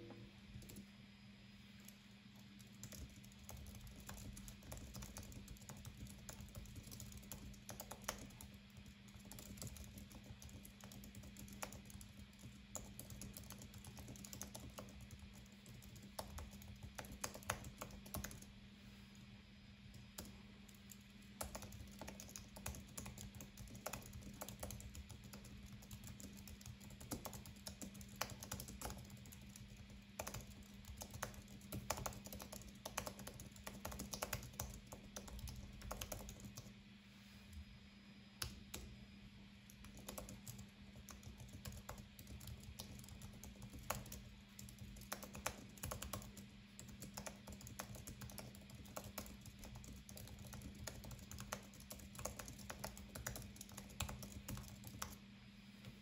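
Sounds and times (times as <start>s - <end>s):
typing key clicks: 39.7s - 55.2s.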